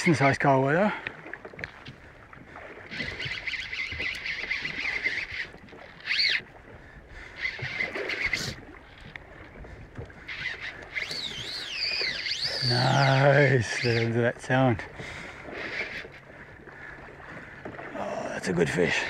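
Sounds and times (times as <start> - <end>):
fishing reel drag buzzing: 2.8 - 9.2, 10.0 - 16.3.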